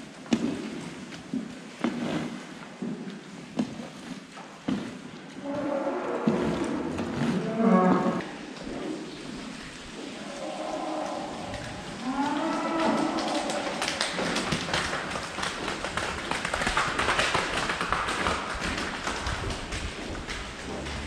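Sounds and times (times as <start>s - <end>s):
cow mooing: 5.4s - 8.3s, 10.3s - 13.5s.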